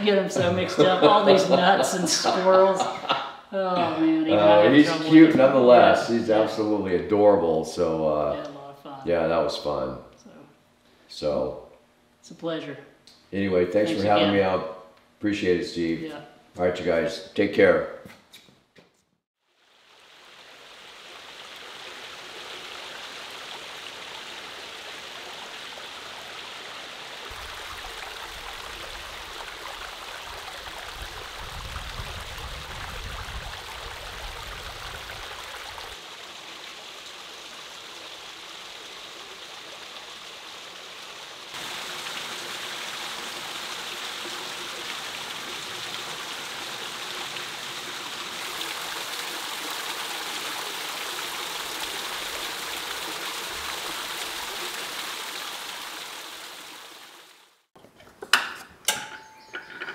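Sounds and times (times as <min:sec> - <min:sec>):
water trickling and splashing: 0:19.4 - 0:57.7.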